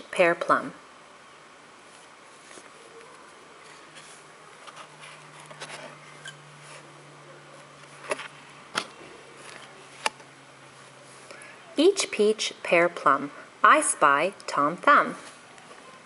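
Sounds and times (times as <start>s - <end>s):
faint low hum: 0.0s - 16.0s
book pages rustling: 1.8s - 6.9s, 7.8s - 10.2s.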